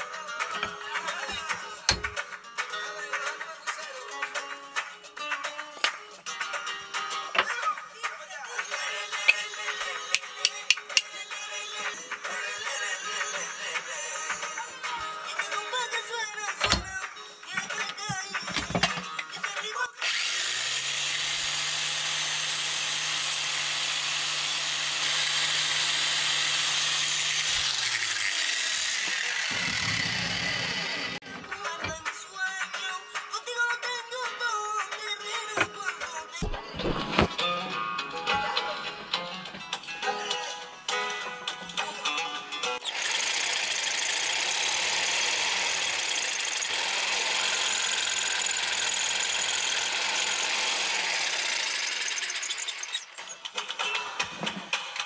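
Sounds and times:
angle grinder grinding wood: 0.4s - 2.2s, 8.8s - 11.2s, 20.0s - 32.0s, 42.8s - 53.4s
jigsaw cutting wood: 0.6s - 2.2s, 20.0s - 31.2s, 42.8s - 53.2s
grinder motor winding down: 20.0s - 31.2s, 42.8s - 53.2s.

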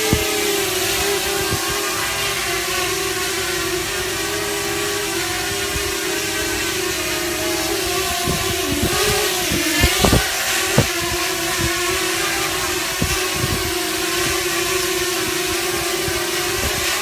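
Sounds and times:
quadcopter motors whining: 0.0s - 17.0s
low thumps: 7.7s - 14.4s.

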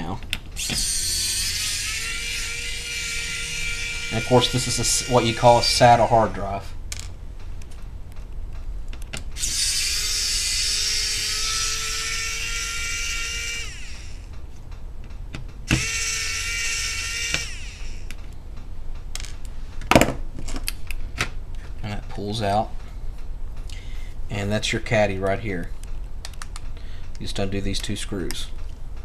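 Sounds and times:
electric screwdriver whining: 0.6s - 6.0s, 9.4s - 14.3s, 15.7s - 18.2s.

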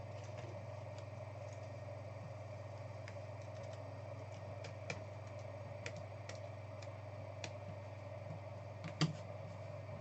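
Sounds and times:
low electrical hum: 0.0s - 10.0s
computer keys clicking: 3.0s - 7.6s.

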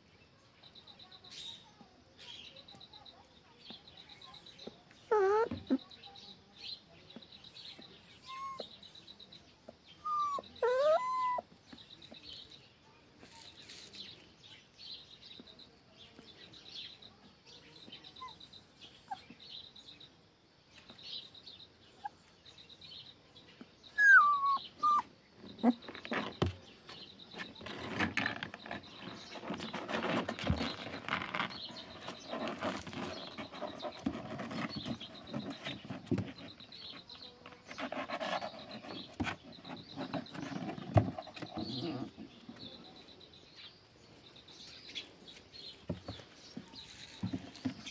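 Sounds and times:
puppy whimpering: 5.0s - 5.8s, 7.6s - 8.8s, 10.0s - 11.6s, 17.8s - 19.4s, 23.9s - 25.8s
claws scratching on plastic tub: 13.2s - 14.4s, 24.0s - 43.0s, 45.5s - 47.9s.

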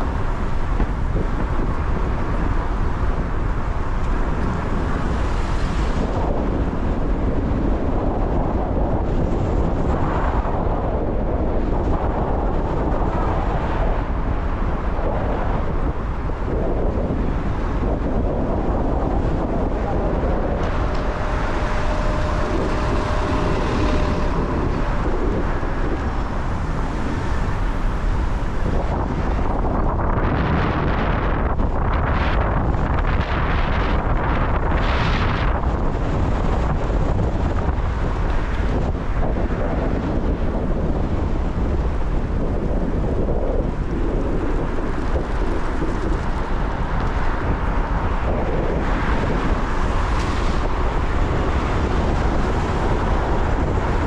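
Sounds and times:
city street traffic: 0.0s - 54.0s
wind buffeting the microphone: 0.0s - 54.0s
rain: 11.3s - 54.0s.

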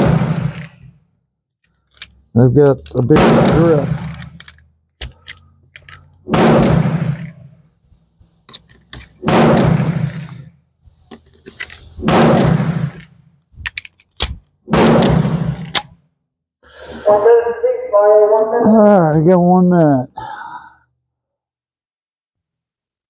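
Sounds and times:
pistol shots with echo: 0.0s - 0.8s, 3.0s - 4.4s, 6.3s - 7.5s, 9.2s - 10.3s, 12.0s - 13.0s, 14.7s - 15.9s.

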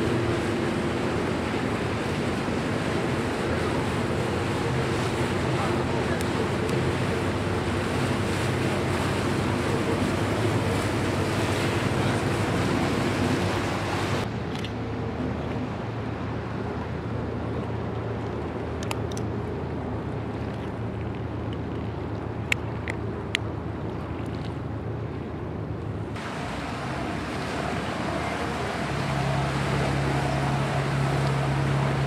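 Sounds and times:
distant train rumble: 0.0s - 14.3s, 26.0s - 32.0s
water noise: 0.0s - 32.0s
wind: 0.0s - 32.0s.

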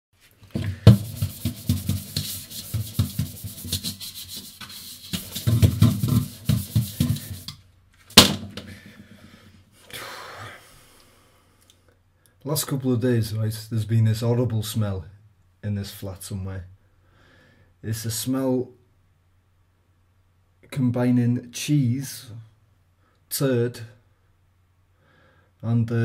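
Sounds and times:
fabric rubbing on microphone: 0.6s - 7.6s
sharp knock: 8.2s - 9.0s.

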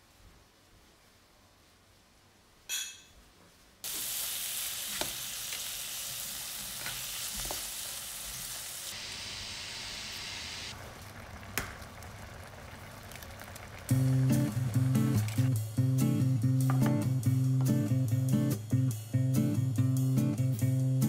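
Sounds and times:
pot boiling: 3.8s - 17.3s
food sizzling in a pan: 3.8s - 18.2s.

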